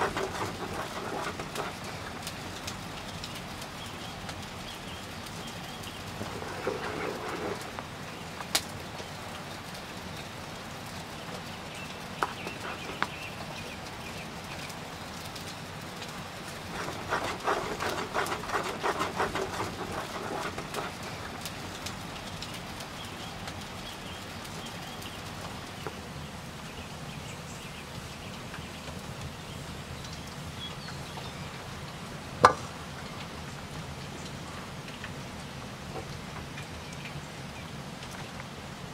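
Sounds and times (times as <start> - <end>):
spatula stirring thick sauce: 0.0 - 4.2, 4.9 - 8.2, 12.2 - 14.2, 16.0 - 22.6
wood fire crackling: 0.0 - 38.9.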